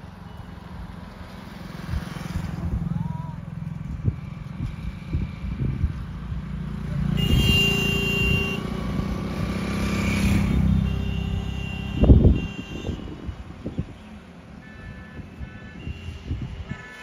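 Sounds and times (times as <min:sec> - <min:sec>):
motorcycle engine: 0:00.0 - 0:12.6
road traffic passing: 0:00.0 - 0:17.0.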